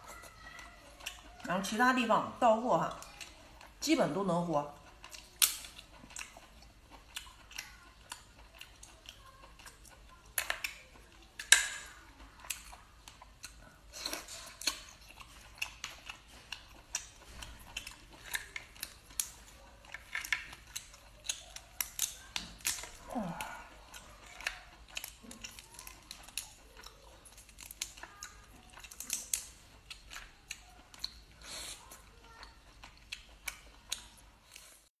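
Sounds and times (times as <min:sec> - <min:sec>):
chewing: 0:00.0 - 0:02.0, 0:02.8 - 0:34.9
lobster shell cracking: 0:04.9 - 0:06.4, 0:09.6 - 0:31.3.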